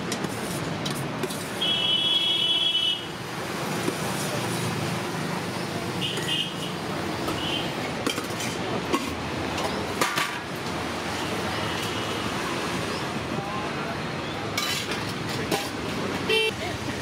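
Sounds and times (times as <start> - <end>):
street traffic hum: 0.0 - 17.0
spoons and lids clinking on pots: 14.6 - 15.8.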